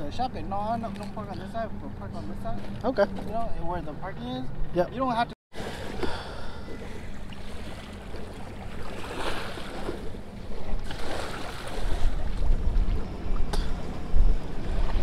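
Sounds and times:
small waves lapping: 5.5 - 15.0
wind buffeting microphone: 6.8 - 15.0.

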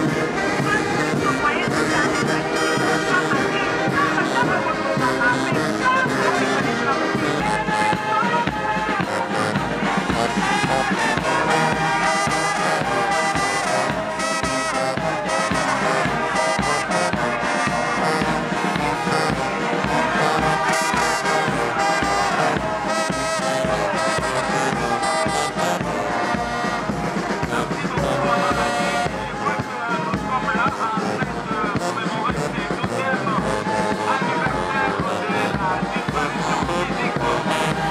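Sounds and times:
brass band music: 0.0 - 37.9.

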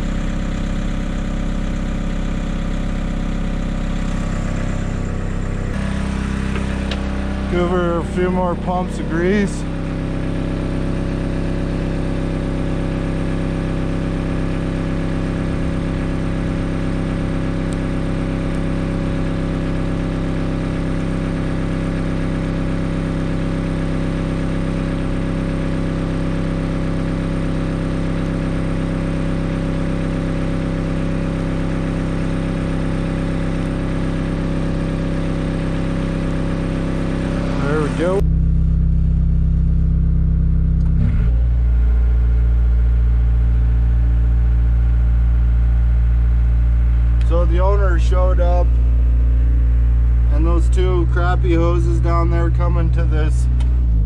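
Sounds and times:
excavator diesel engine idling: 0.0 - 54.0.

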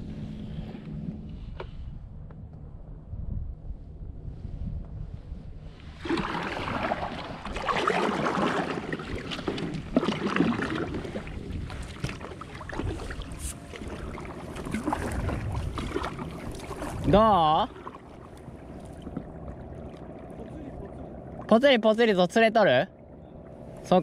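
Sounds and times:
wind rumble on microphone: 0.0 - 21.5
paddle splashing and dripping: 5.9 - 21.6.

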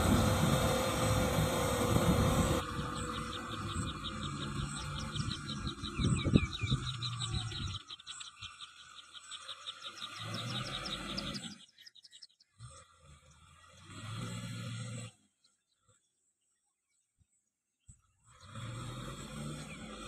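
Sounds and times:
low rumble: 0.0 - 7.8
steady mechanical noise: 0.0 - 11.6.

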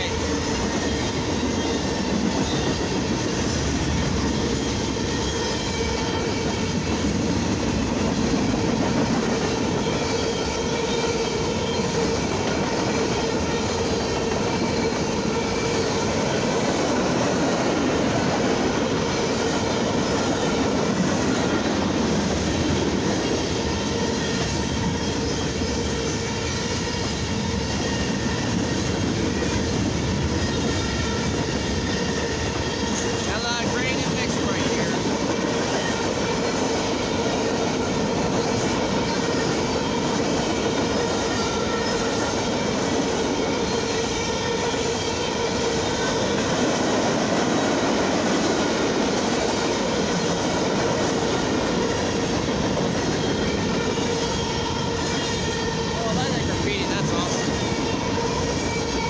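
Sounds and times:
freight train wheels rumbling on rail: 0.0 - 59.0.

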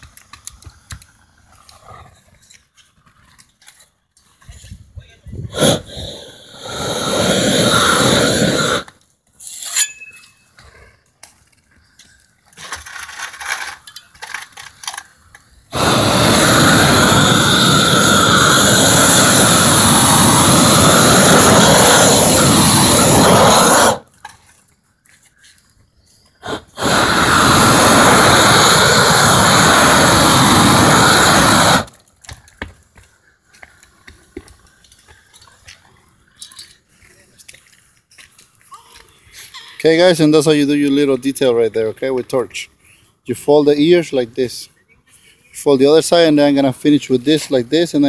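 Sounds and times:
roofing torch flame rushing: 5.3 - 9.0, 15.5 - 24.2, 26.4 - 32.1.

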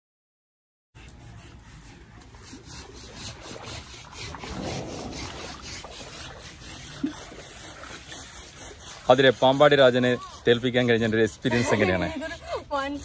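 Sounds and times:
husk scrubbing wet hide: 1.0 - 13.0.

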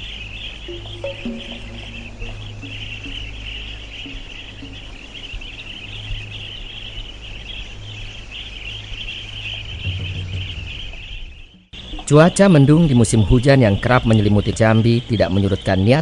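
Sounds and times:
low steady hum: 0.0 - 15.4
soft music notes: 0.6 - 12.1.

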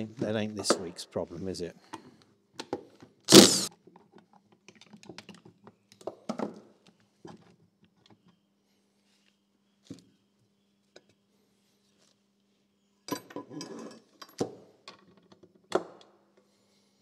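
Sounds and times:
cordless driver spinning: 3.3 - 3.7.

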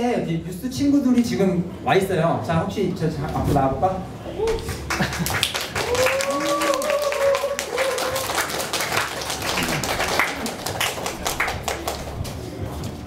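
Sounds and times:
small audience clapping: 4.4 - 12.5.

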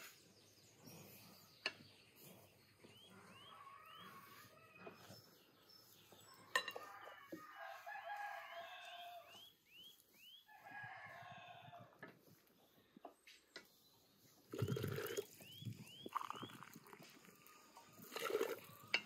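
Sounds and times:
rooster crowing: 7.1 - 9.3
small bird chirping: 13.5 - 17.7.

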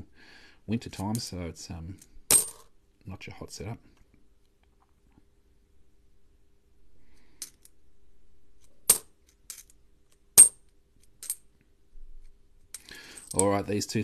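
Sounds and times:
faint rubbing of coins: 12.8 - 13.6
coins clinking: 13.0 - 13.6.

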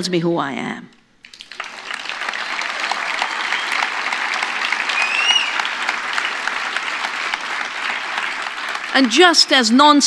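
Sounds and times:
audience applauding: 1.2 - 9.8
rising and falling whistle: 3.1 - 4.0, 4.6 - 5.8.

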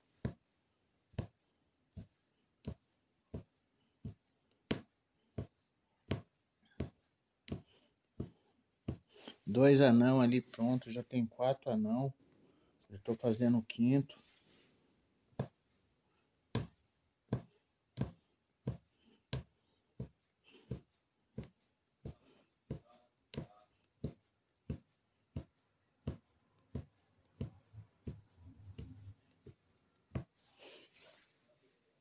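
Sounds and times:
punch needle popping through fabric: 4.0 - 8.3, 16.5 - 20.1
rustle of handling: 13.0 - 14.9, 28.0 - 32.0.

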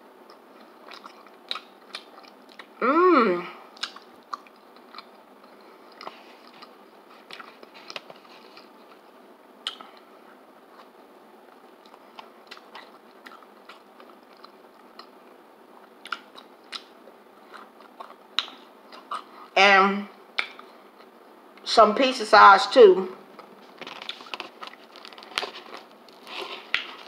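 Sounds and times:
chewing: 0.2 - 2.8, 3.7 - 19.5, 23.3 - 27.0
wet mouth smacks and clicks: 3.8 - 5.1, 18.4 - 19.2, 20.4 - 20.7.

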